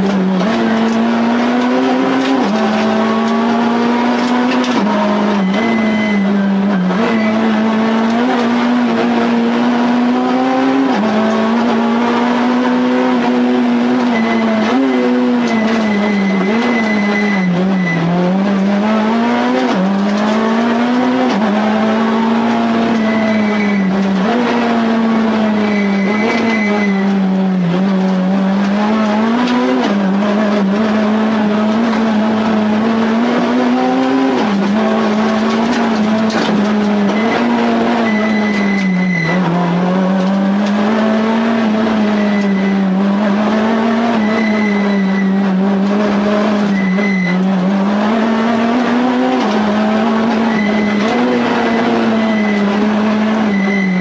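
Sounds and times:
car engine revving hard: 0:00.0 - 0:54.0
faint high squeal: 0:05.3 - 0:07.4, 0:14.1 - 0:18.1, 0:25.5 - 0:27.1, 0:38.0 - 0:39.4, 0:44.2 - 0:45.4, 0:46.7 - 0:47.4, 0:50.4 - 0:51.0, 0:53.4 - 0:54.0.

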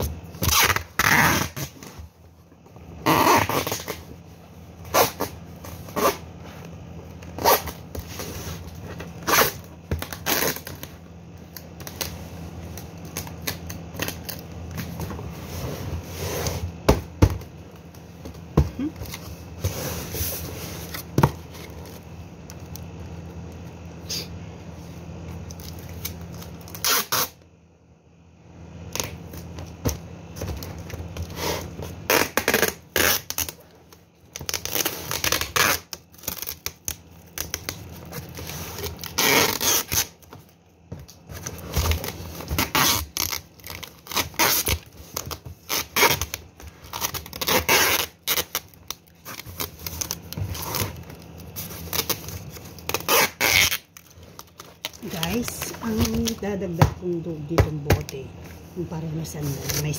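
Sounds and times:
packing tape scraping and tearing: 0:00.0 - 0:02.1, 0:03.0 - 0:04.2, 0:04.8 - 0:16.8, 0:25.5 - 0:27.4, 0:28.9 - 0:29.7, 0:30.4 - 0:56.4.

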